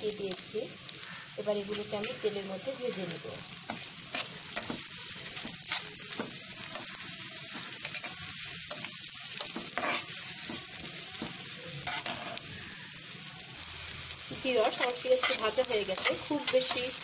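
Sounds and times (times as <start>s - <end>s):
onions sizzling in hot oil: 0.0s - 17.0s
spatula scraping pan: 3.7s - 12.5s, 14.7s - 17.0s.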